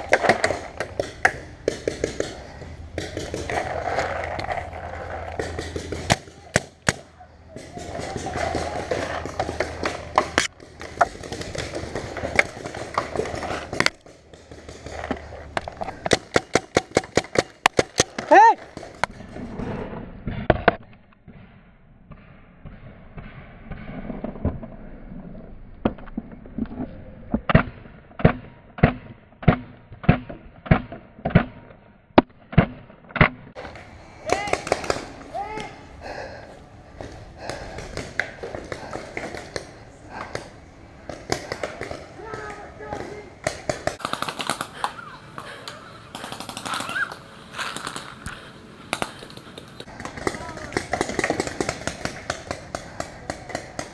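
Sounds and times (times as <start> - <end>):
paintball markers firing: 0.0 - 19.1, 28.2 - 35.7, 37.0 - 53.9.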